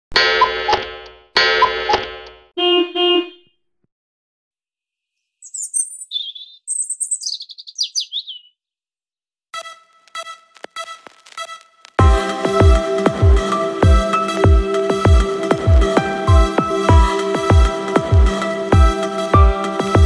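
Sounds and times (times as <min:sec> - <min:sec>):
birds chirping and twittering: 0:05.2 - 0:08.6
music: 0:09.6 - 0:20.0.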